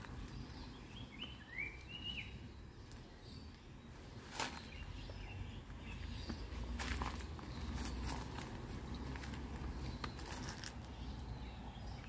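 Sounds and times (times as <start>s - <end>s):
faint outdoor background noise: 0.0s - 12.0s
whistled bird chirps: 0.5s - 3.0s.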